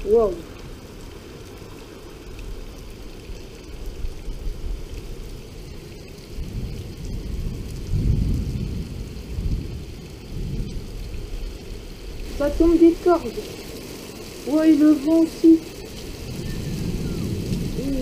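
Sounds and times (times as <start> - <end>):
heavy rain: 0.0 - 18.0
thunder rumbling: 6.3 - 18.0.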